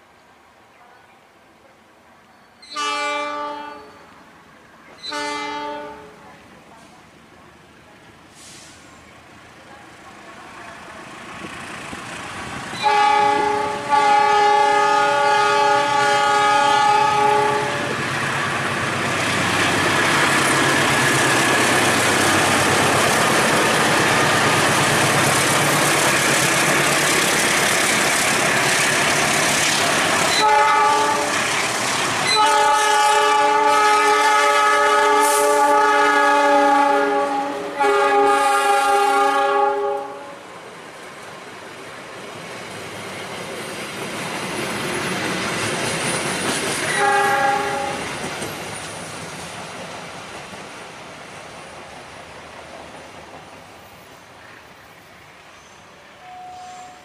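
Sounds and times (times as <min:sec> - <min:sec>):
train passing with rail clatter: 0:00.0 - 0:57.0
train horn blasts: 0:02.6 - 0:04.1, 0:05.0 - 0:06.2, 0:12.8 - 0:18.1, 0:30.3 - 0:31.4, 0:32.3 - 0:40.4, 0:46.9 - 0:48.1, 0:56.2 - 0:57.0.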